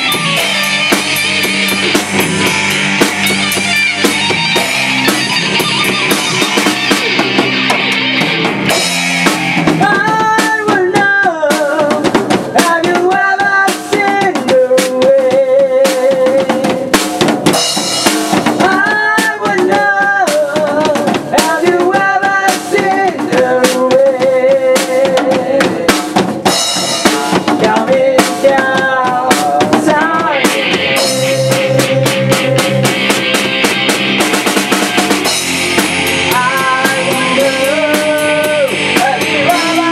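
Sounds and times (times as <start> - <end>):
melodic guitar line with bends: 0.0 - 14.9, 26.1 - 39.9
electric guitars: 0.0 - 15.0, 15.8 - 39.9
drum kit playing: 0.0 - 39.9.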